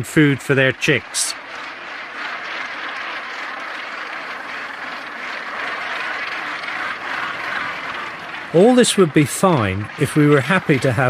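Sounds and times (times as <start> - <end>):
seabird colony calling: 0.0 - 11.0.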